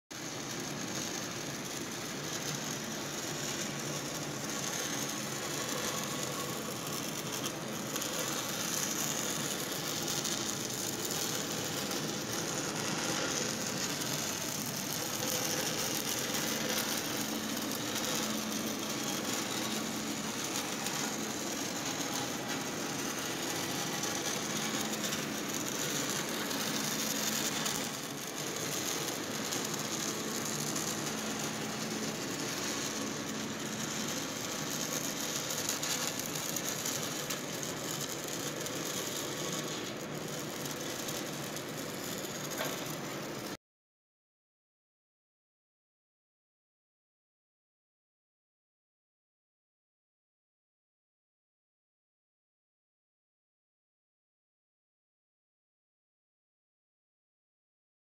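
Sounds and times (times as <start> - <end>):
welding arcs crackling: 0.1 - 43.6.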